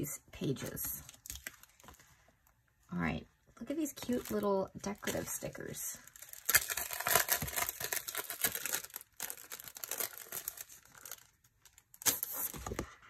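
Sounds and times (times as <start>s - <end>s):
sticker sheets crinkling: 3.9s - 12.9s.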